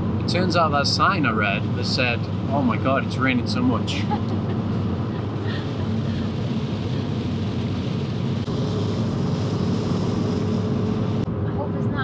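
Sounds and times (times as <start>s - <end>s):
car cabin road rumble: 0.0s - 12.0s
rain hiss on wet road: 5.3s - 11.2s.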